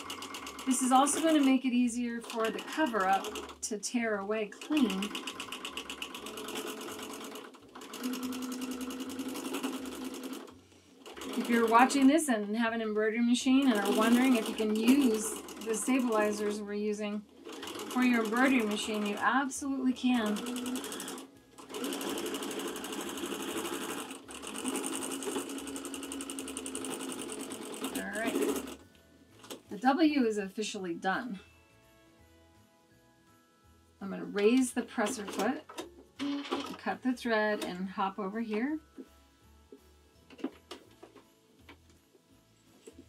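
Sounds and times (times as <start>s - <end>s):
sewing machine stitching: 0.0s - 3.8s, 4.4s - 12.5s, 13.5s - 16.6s, 17.4s - 19.3s, 20.0s - 28.8s, 35.0s - 37.8s.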